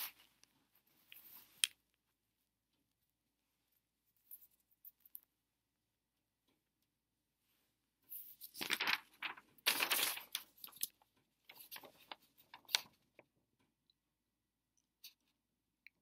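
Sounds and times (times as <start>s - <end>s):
paper rustling and crinkling: 8.1s - 13.0s.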